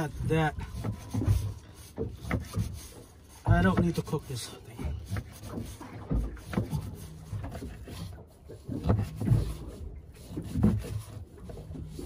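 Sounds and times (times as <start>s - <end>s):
dull knocks: 0.6s - 4.1s.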